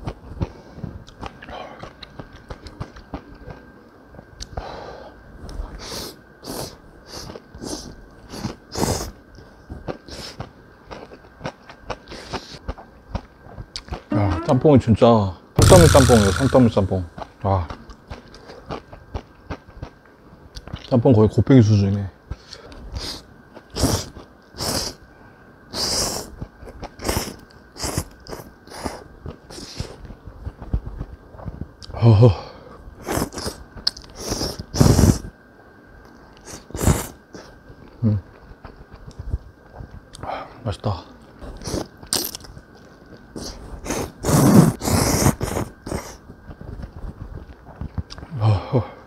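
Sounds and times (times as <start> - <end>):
chewing: 0.0 - 3.7, 7.2 - 14.1, 17.2 - 20.9, 45.2 - 48.3
slurping noodles: 23.0 - 25.0, 27.0 - 30.0, 33.0 - 33.6, 34.2 - 35.2, 43.4 - 46.2
noodles being slurped: 43.4 - 46.2.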